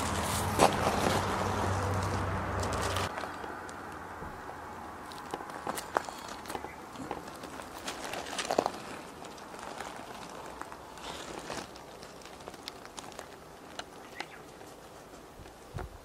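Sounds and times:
rabbit hopping over mulch: 0:00.0 - 0:04.0.

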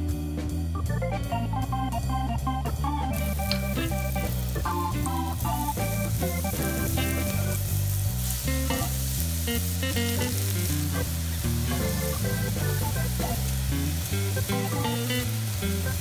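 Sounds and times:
keyboard background music: 0:00.0 - 0:16.0
mushrooms sizzling in oil: 0:02.9 - 0:16.0.

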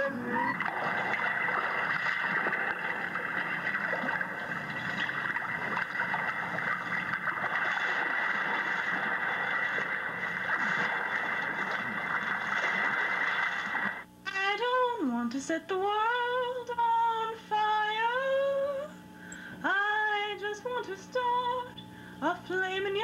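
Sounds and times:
faint crackle: 0:00.6 - 0:14.0.

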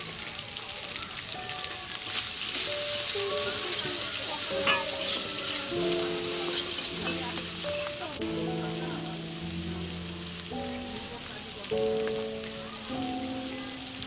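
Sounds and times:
onions sizzling in pan: 0:00.0 - 0:14.0
metal spatula stirring: 0:02.0 - 0:08.2.

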